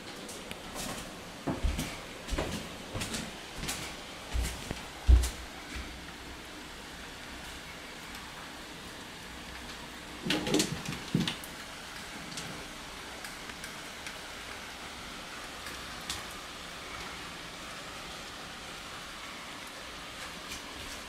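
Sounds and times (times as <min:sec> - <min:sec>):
rain hissing: 0:00.0 - 0:21.0.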